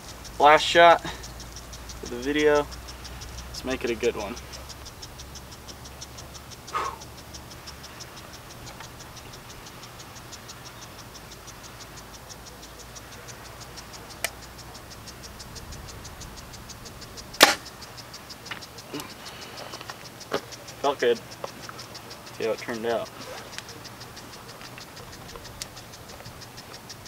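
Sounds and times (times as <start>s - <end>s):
fast steady ticking: 0.0s - 27.0s
sharp click: 0.0s - 27.0s
bow string snap: 17.3s - 17.7s.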